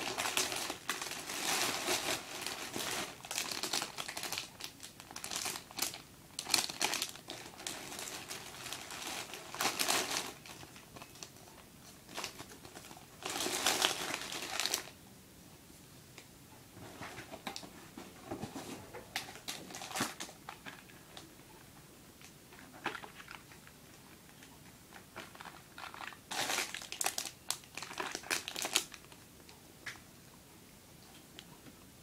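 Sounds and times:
packaging crinkling and rustling: 0.0s - 15.0s, 18.4s - 21.3s, 22.2s - 23.7s, 24.3s - 29.2s.

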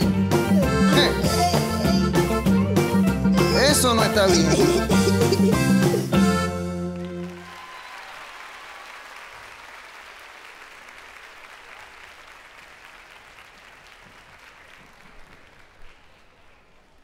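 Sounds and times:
audience applauding: 6.3s - 17.0s.

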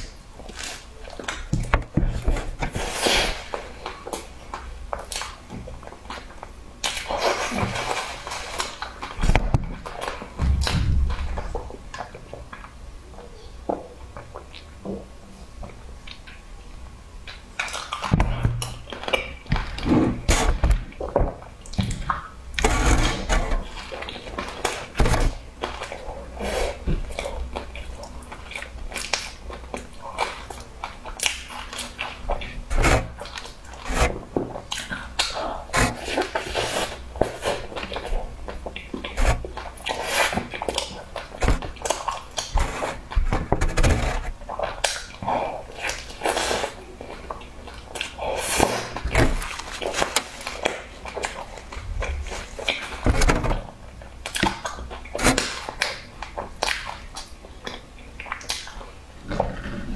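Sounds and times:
mouth clicks and snaps: 13.6s - 14.8s, 33.2s - 59.5s
close chewing and biting: 17.2s - 59.9s.

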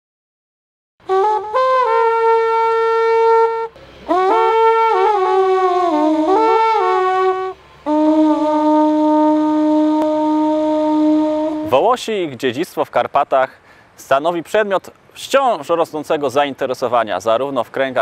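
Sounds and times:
wind instrument slow melody: 1.0s - 12.0s.

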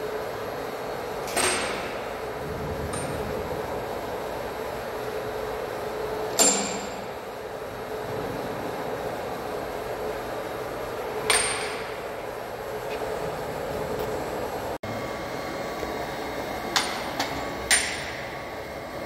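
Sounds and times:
lathe humming: 7.0s - 19.0s.

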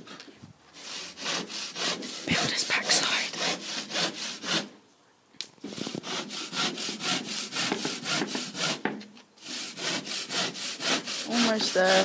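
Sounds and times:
handsaw sawing plasterboard: 0.8s - 4.7s, 5.7s - 12.0s.

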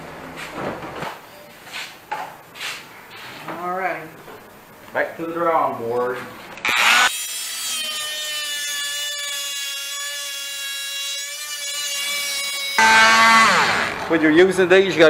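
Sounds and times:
multi-tool sawing into log: 6.6s - 14.1s.

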